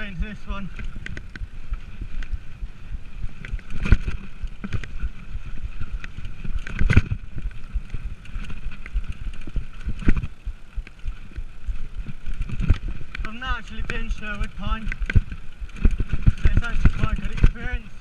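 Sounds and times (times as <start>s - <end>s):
tyres rumbling on dirt: 0.0s - 18.0s
bike clunks and rattles: 3.2s - 10.4s, 11.1s - 17.8s.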